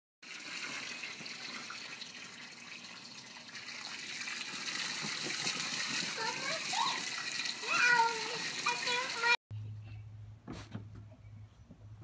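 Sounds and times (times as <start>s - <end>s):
hose water splashing into pool: 0.2s - 9.4s.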